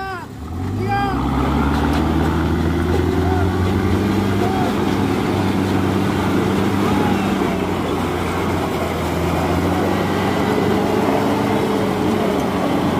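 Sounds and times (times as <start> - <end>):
diesel engine droning: 0.0 - 12.9.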